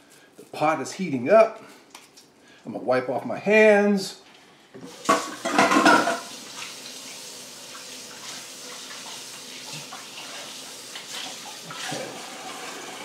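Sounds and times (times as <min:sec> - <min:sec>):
water running from tap: 0:04.8 - 0:13.0.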